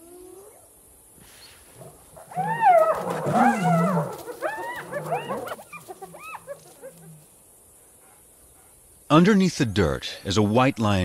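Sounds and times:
hyenas calling: 1.8 - 7.3.

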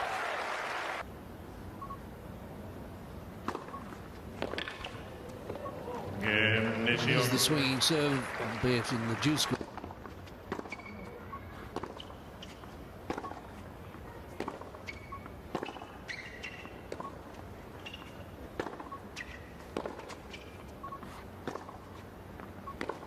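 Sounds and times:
racquets striking tennis ball: 3.4 - 11.1, 11.7 - 13.6, 14.4 - 23.0
shoes squeaking on court: 3.5 - 8.6, 9.2 - 23.0.

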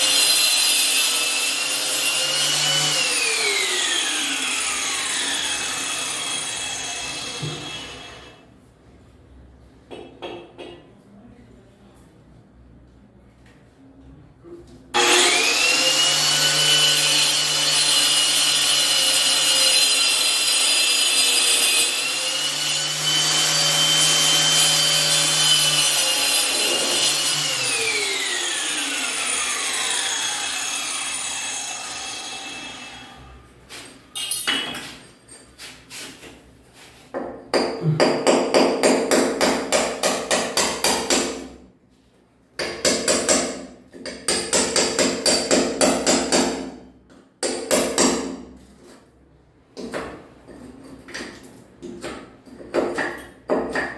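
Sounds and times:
angle grinder cutting tile: 0.0 - 8.3, 15.0 - 33.3
hammer and chisel chipping tile: 15.0 - 29.1, 37.1 - 41.6, 42.6 - 49.0, 49.8 - 53.9.

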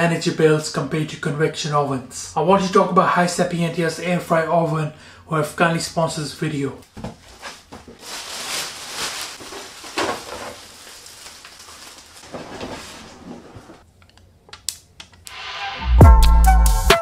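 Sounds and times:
plastic and cardboard rustling: 6.9 - 13.9
protective film crackling: 7.5 - 13.2.

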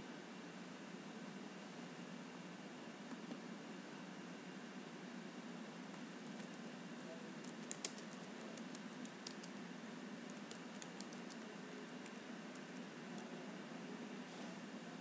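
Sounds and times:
keyboard typing: 7.4 - 9.6, 10.3 - 13.3.

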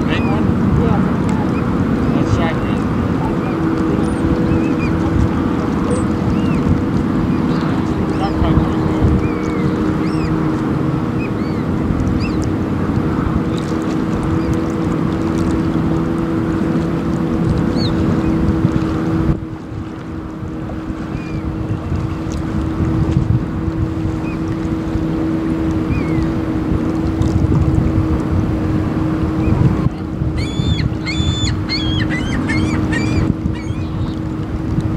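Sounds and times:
motor humming: 0.0 - 34.9
wind rumble on microphone: 0.0 - 34.9
bird piping notes: 3.1 - 12.5, 30.4 - 34.2.

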